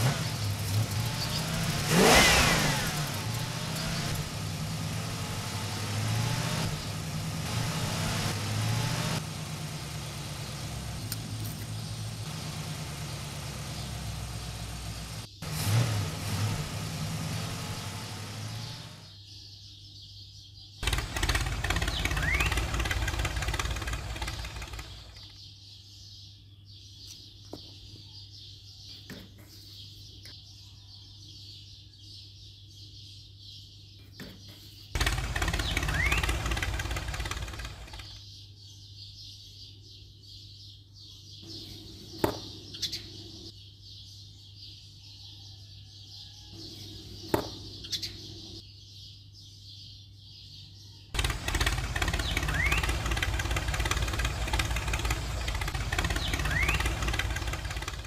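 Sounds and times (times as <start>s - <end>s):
toy tractor engine sound effect: 20.8s - 25.2s, 35.0s - 38.2s, 51.2s - 58.0s.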